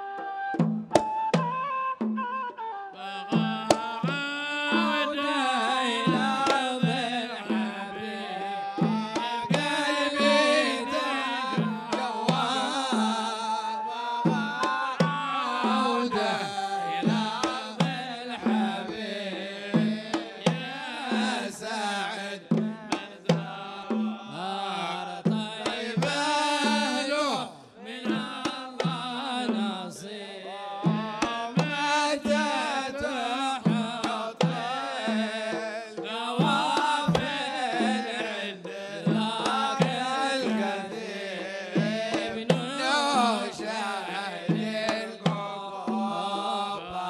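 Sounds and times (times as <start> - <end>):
voices singing: 0.0 - 47.0
hand drum hits: 33.6 - 43.8.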